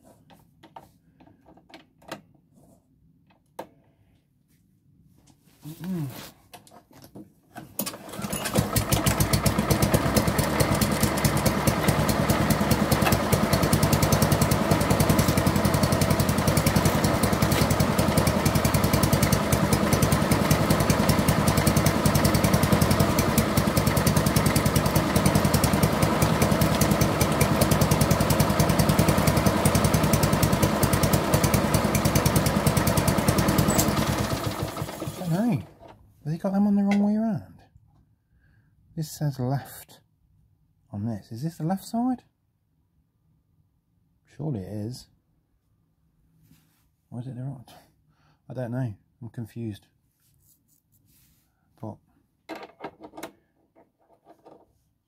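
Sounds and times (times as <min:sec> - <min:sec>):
lawnmower engine running: 0:07.8 - 0:35.9.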